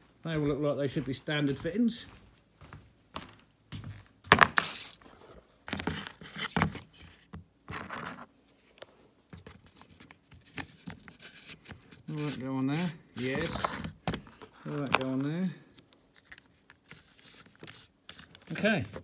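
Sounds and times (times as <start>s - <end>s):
hose fittings clinking and rattling: 14.6s - 15.4s.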